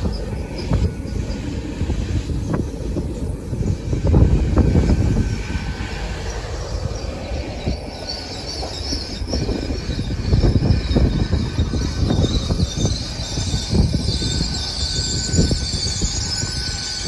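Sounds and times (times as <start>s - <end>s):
high wheel squeal: 0.0s - 17.0s
train rumbling past: 0.0s - 17.0s.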